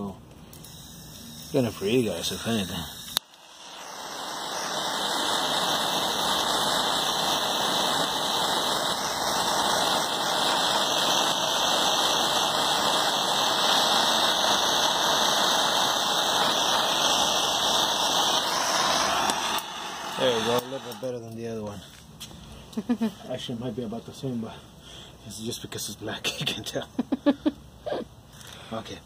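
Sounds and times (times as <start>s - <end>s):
hand torch hissing: 0.5s - 22.9s
torch ignition click: 2.9s - 21.5s.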